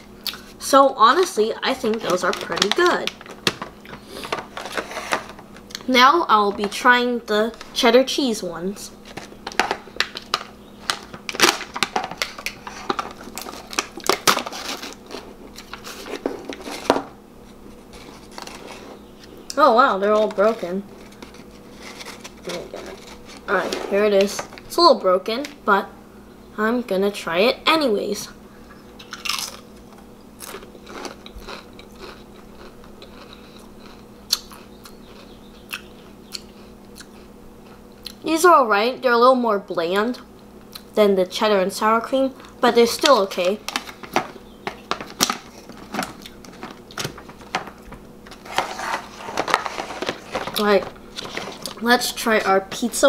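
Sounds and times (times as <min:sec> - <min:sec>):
faint steady hum: 0:00.0 - 0:53.0
crisp crunching: 0:01.7 - 0:05.8, 0:09.0 - 0:24.7, 0:29.0 - 0:29.8, 0:30.4 - 0:35.8, 0:43.5 - 0:51.8
foil seal peeling with crackles: 0:09.0 - 0:16.9, 0:20.0 - 0:24.0.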